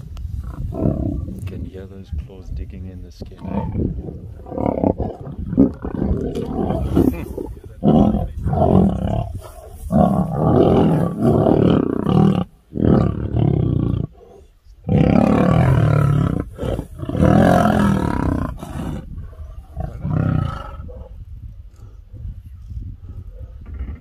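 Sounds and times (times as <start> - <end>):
lions roaring: 3.4 - 22.0.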